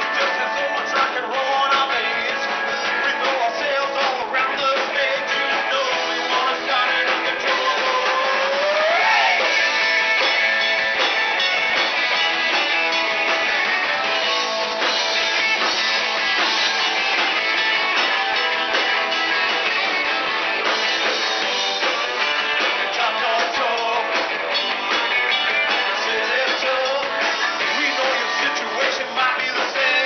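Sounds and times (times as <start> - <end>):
person singing: 0.0 - 9.6, 22.6 - 24.3, 25.7 - 30.0
drum kit: 0.0 - 30.0
electric guitars: 0.0 - 30.0.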